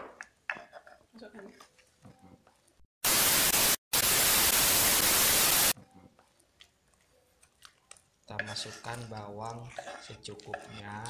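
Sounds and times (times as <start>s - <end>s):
loud electronic white-noise static: 3.0s - 5.8s.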